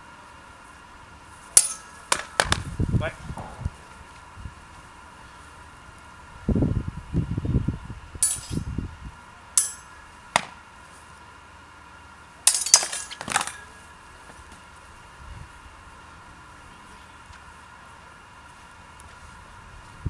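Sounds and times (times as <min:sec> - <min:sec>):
steel swords clashing: 0:01.5 - 0:02.6, 0:08.2 - 0:08.7, 0:09.6 - 0:10.6, 0:12.4 - 0:13.8
dull low thumps: 0:02.5 - 0:04.8.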